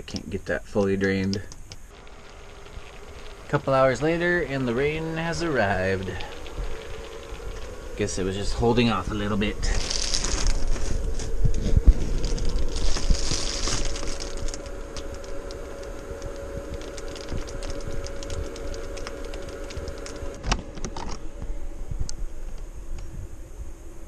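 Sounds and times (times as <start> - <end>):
faint steady hum: 0.0 - 24.0
rain pattering on roof: 0.1 - 20.4
rustle: 9.1 - 21.2.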